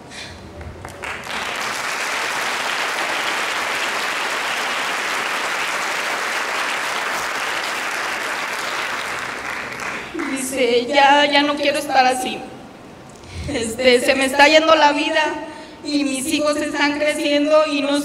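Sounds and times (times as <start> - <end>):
audience applauding: 0.8 - 10.4.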